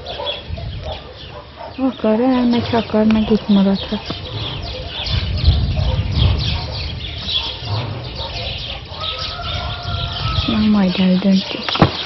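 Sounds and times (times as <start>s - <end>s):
birds chirping: 0.0s - 12.0s
chickens: 0.0s - 12.0s
low rumble: 2.5s - 10.9s.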